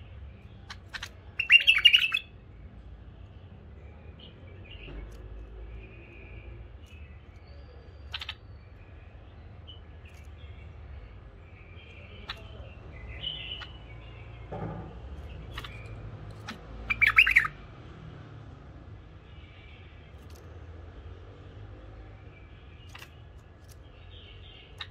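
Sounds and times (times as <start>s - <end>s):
bird chirping: 0.0s - 24.9s
bird whistling quick notes: 16.9s - 17.5s.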